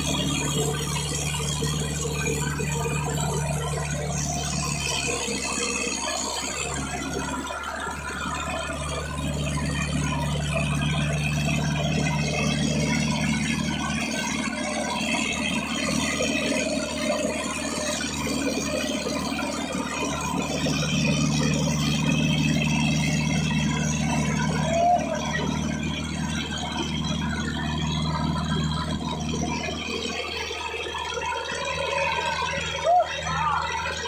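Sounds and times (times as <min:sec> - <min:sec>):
tractor diesel engine running: 0:00.0 - 0:34.0.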